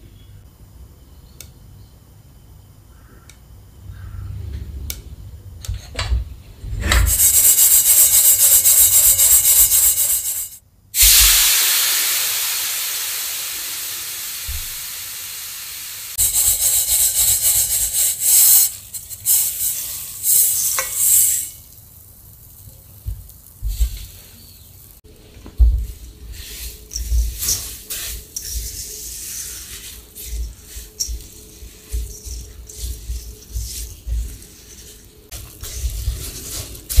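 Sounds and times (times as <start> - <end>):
seeds rustling across hot pan: 7.1 - 37.0
seeds poured into metal bowl: 16.2 - 23.4, 26.0 - 37.0
seeds popping in a pan: 16.2 - 25.0, 25.8 - 37.0.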